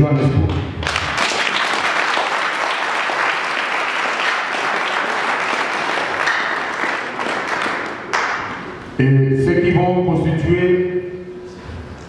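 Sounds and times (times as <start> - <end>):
audience applauding: 0.8 - 8.5.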